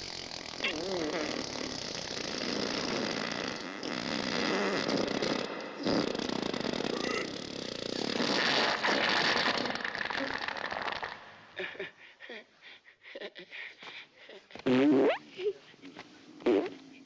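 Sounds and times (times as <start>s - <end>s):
man groaning with effort: 6.9s - 7.3s.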